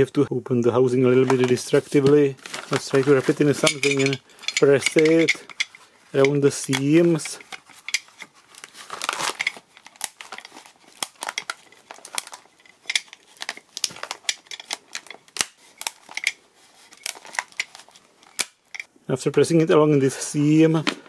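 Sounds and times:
paper crinkling: 0:01.2 - 0:18.5.

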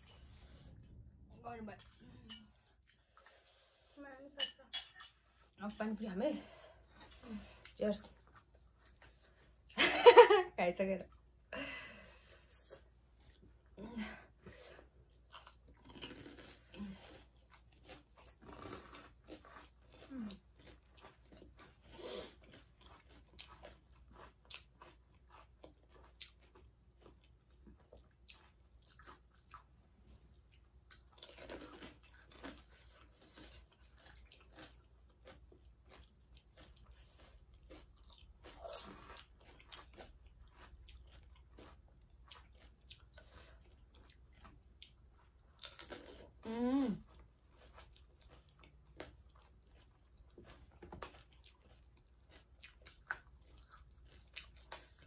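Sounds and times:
crisp shells crunching when chewed: 0:15.2 - 0:29.7, 0:31.0 - 0:46.4, 0:47.0 - 0:55.0.

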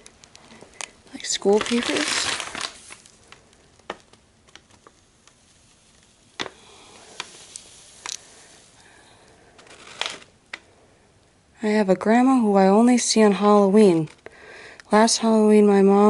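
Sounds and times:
paper crackling: 0:00.0 - 0:10.7
paper rustle: 0:00.4 - 0:06.5, 0:09.5 - 0:10.3.

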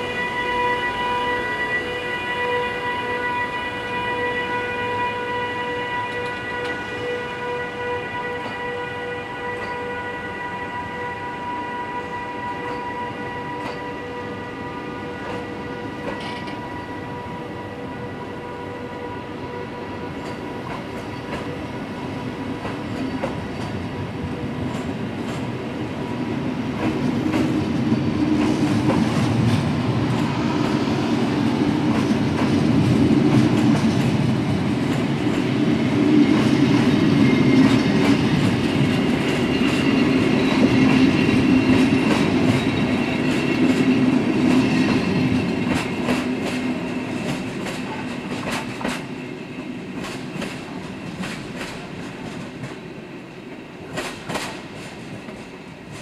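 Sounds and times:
train rumble: 0:10.9 - 0:56.0
train wheels clicking over joints: 0:20.2 - 0:21.6, 0:22.5 - 0:23.9, 0:24.6 - 0:25.6, 0:26.7 - 0:30.8, 0:31.4 - 0:52.8, 0:53.5 - 0:56.0.

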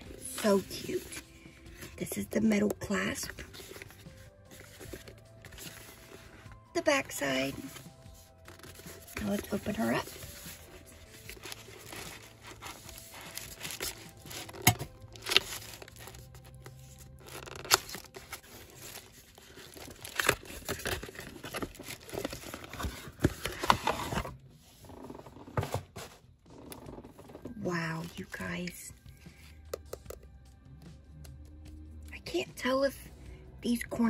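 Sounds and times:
wrapping tearing and crinkling: 0:03.1 - 0:06.5, 0:07.3 - 0:24.3
box clicks and taps: 0:29.6 - 0:30.3.

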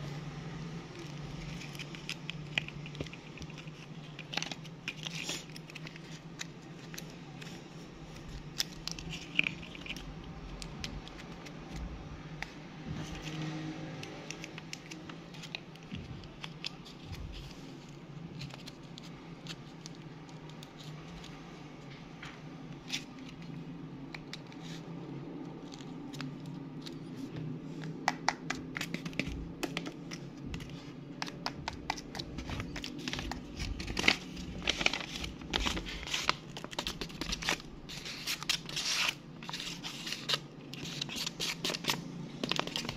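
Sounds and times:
low steady hum: 0:00.0 - 0:42.9
paper crinkling: 0:00.9 - 0:13.4, 0:14.0 - 0:21.4, 0:22.8 - 0:42.9
small clicks and scratches: 0:00.9 - 0:22.0.

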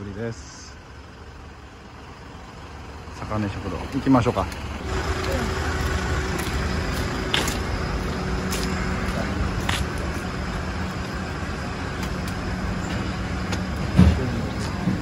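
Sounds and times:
road traffic rumble: 0:00.0 - 0:15.0
faint footstep clicks: 0:05.8 - 0:11.2.

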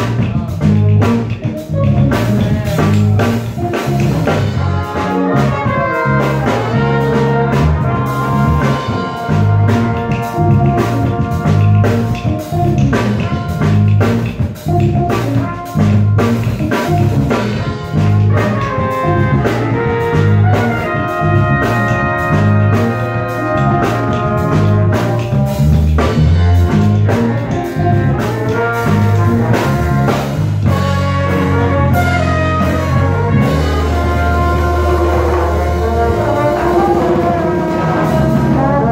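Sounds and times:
drum kit: 0:00.0 - 0:38.9
electric bass: 0:00.0 - 0:38.9
horn section playing melody: 0:00.9 - 0:38.9.

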